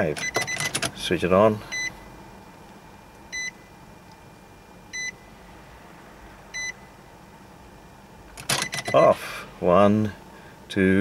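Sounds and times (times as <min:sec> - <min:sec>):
dashboard warning chime beeps: 0:00.2 - 0:00.7, 0:01.7 - 0:02.0, 0:03.3 - 0:03.6, 0:04.9 - 0:05.2, 0:06.5 - 0:06.8, 0:08.6 - 0:09.2.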